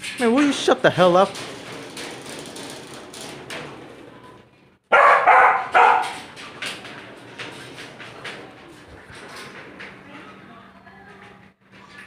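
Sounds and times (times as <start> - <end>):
dog barking sharply: 4.9 - 6.2.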